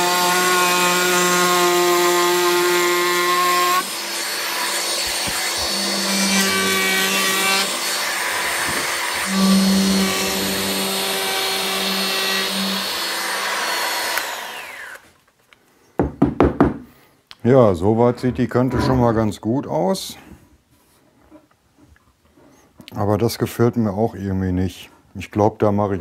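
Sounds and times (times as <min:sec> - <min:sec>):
router cutting wood: 0:00.0 - 0:15.0
router spinning down whine: 0:03.2 - 0:15.0.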